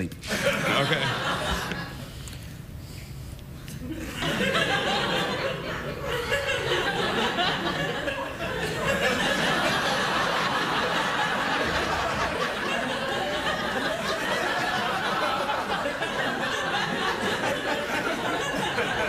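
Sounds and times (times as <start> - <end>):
studio audience laughing: 0.2 - 2.1, 3.8 - 19.0.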